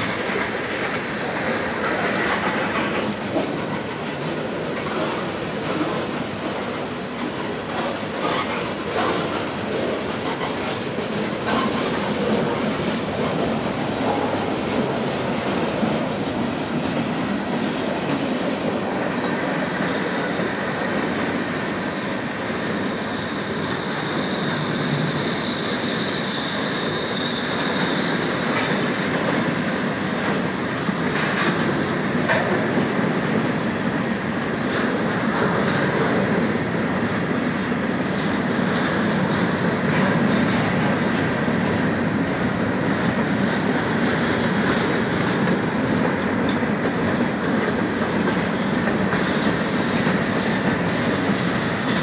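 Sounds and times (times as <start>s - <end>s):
train rumble: 0.0s - 52.0s
train wheels clacking over rail joints: 0.0s - 52.0s
high wheel squeal: 23.1s - 29.4s.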